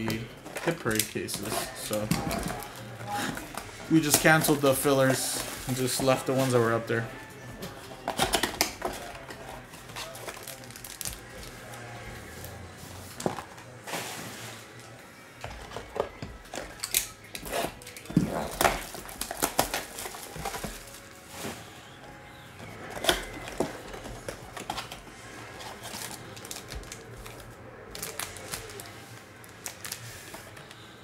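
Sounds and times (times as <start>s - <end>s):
shrink wrap crinkling: 8.2s - 12.6s, 16.7s - 22.0s, 22.7s - 30.8s.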